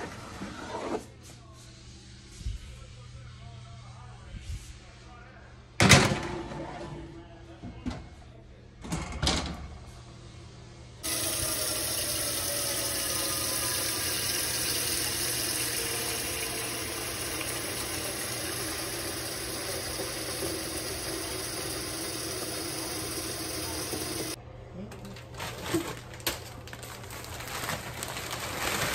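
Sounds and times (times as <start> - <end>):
faucet filling a saucepan: 11.0 - 24.4.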